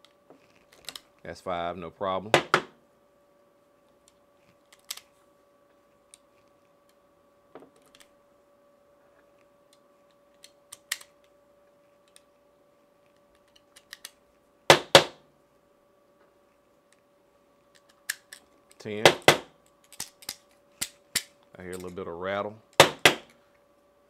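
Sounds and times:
faint steady hum: 0.0 - 24.0
cartridges clicking into magazine: 4.7 - 5.1, 9.7 - 11.3, 13.4 - 14.2, 17.7 - 18.8, 19.7 - 22.0.

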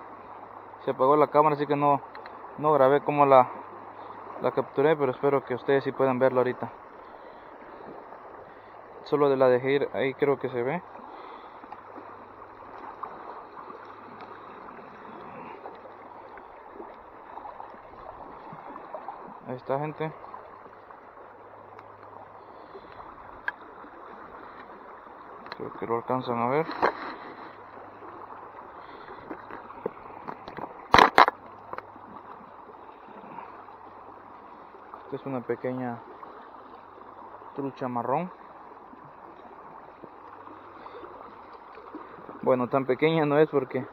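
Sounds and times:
creek water flowing and splashing: 0.0 - 43.9
light ticks: 2.1 - 2.4, 21.7 - 22.2, 25.4 - 25.6.

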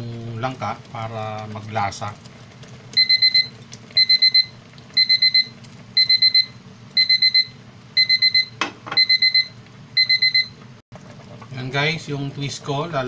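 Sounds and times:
electronic alarm beeping: 3.0 - 10.6.

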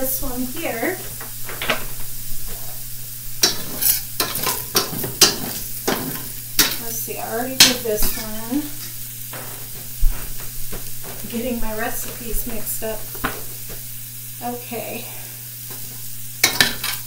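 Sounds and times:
shrimp sizzling in skillet: 0.0 - 17.0
metal spoon scraping pan: 3.4 - 13.8.

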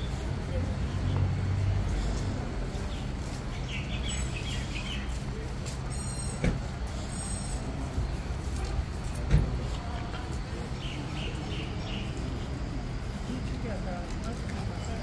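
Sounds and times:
road traffic rumble: 0.0 - 15.0
birds chirping: 1.9 - 8.4, 10.4 - 13.2.

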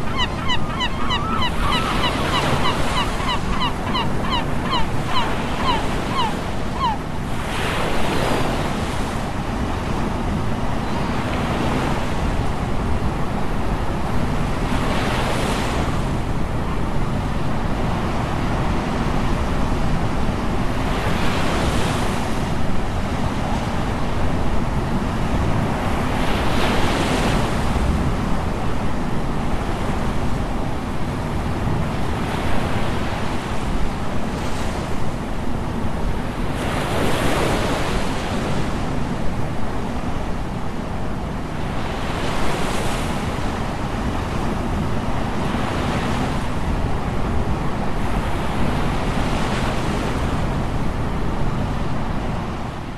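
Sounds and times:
wind rumble on microphone: 0.0 - 52.9
bird calling short notes: 0.1 - 7.0.

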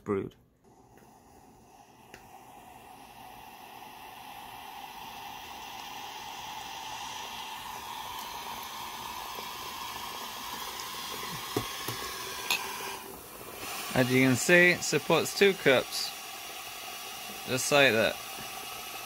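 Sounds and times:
hot water pouring into mug: 0.7 - 19.0
mug knocking on tray: 11.4 - 12.6.

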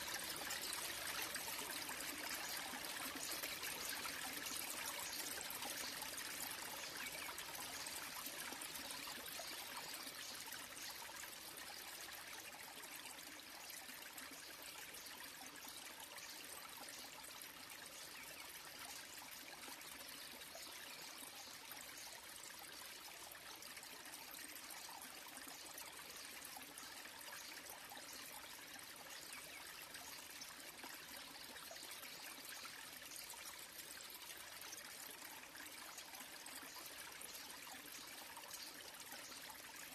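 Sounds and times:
small waterfall splashing: 0.0 - 39.9.

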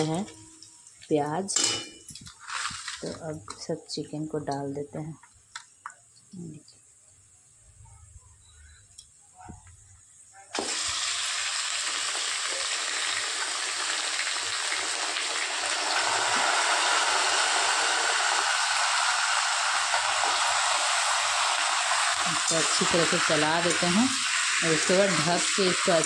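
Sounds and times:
chicken sizzling in hot oil: 10.5 - 26.0.

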